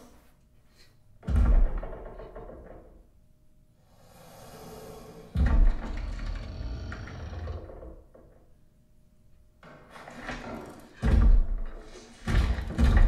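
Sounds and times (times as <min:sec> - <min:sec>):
deep booming hits: 0:05.3 - 0:07.7.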